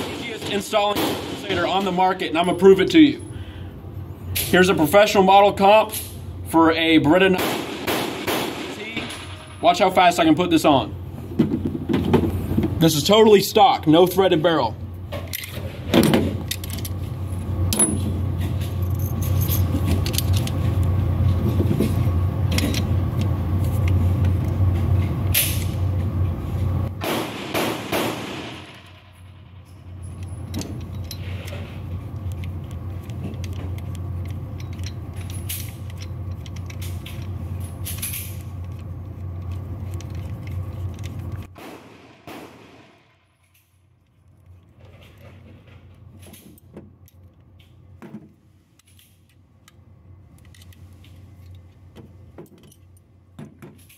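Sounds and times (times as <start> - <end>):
steady low hum: 0.0 - 53.9
pistol parts clicking and clattering: 15.1 - 21.0, 21.8 - 25.8, 28.4 - 41.5, 42.9 - 53.9.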